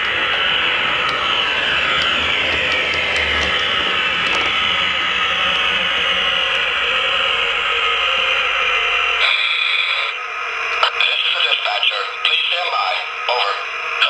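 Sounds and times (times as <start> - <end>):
model train motor whirring: 0.0 - 10.8
electric engine roar from speaker: 0.0 - 14.0.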